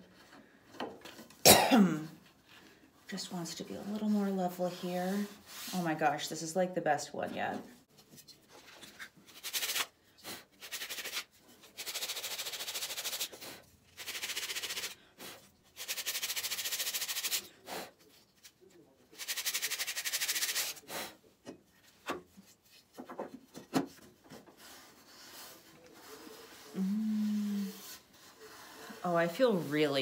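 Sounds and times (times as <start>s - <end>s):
sandpaper scratching: 10.6s - 13.4s, 14.0s - 15.0s, 15.8s - 17.5s, 19.2s - 20.8s.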